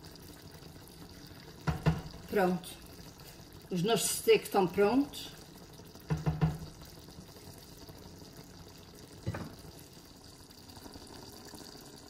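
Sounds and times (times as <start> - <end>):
gravy bubbling in a pan: 0.0 - 12.0.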